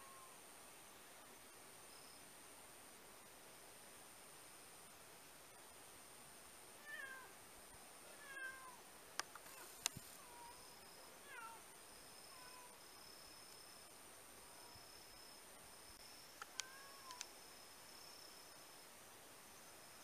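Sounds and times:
cat meowing: 0:08.2 - 0:08.8, 0:11.3 - 0:11.6, 0:16.6 - 0:17.2
sharp clicks: 0:09.2 - 0:10.0, 0:16.4 - 0:17.3.

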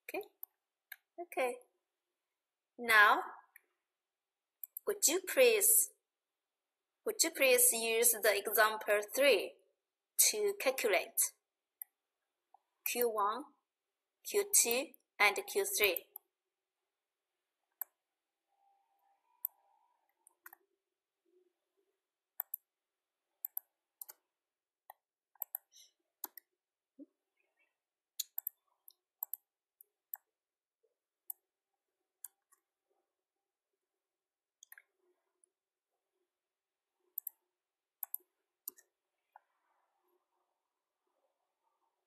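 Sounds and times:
computer mouse clicks: 0:04.6 - 0:04.8, 0:20.2 - 0:20.6, 0:22.4 - 0:22.7, 0:23.4 - 0:24.2, 0:24.9 - 0:26.5, 0:28.2 - 0:30.3, 0:34.6 - 0:34.9, 0:37.2 - 0:37.4, 0:38.0 - 0:39.4
keyboard clicks: 0:22.4 - 0:22.6, 0:25.4 - 0:26.5, 0:28.2 - 0:28.6.

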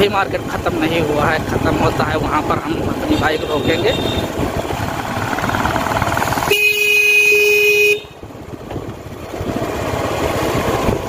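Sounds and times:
motorbike running slowly: 0:00.0 - 0:11.0
motorbike horn honking: 0:03.1 - 0:04.4, 0:06.4 - 0:08.2.

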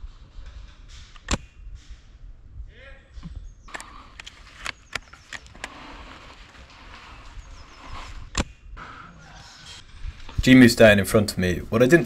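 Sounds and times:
steady outdoor hiss: 0:09.7 - 0:12.0.

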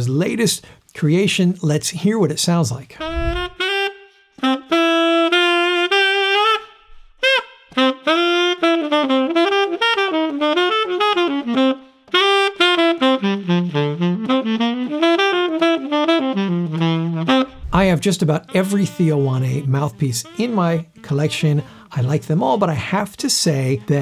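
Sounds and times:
tenor saxophone playing jazz: 0:03.0 - 0:24.0.

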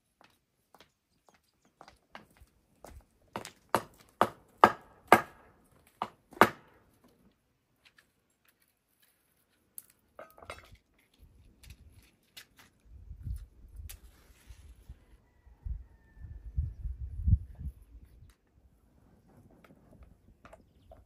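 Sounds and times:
footsteps on stone path: 0:00.0 - 0:04.2
firewood sticks clicking and rustling: 0:07.8 - 0:14.2.

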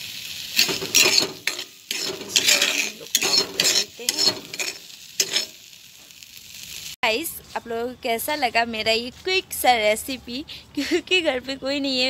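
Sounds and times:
spatula scraping a pan: 0:00.6 - 0:05.7.

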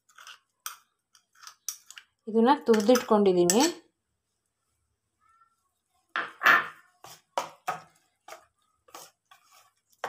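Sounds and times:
glass bowl knocked on counter: 0:06.2 - 0:06.8
hand mixing thick batter: 0:06.8 - 0:10.0.

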